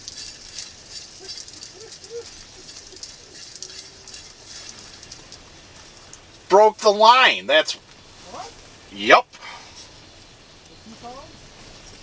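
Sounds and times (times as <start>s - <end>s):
propane heater hissing: 3.2s - 12.0s.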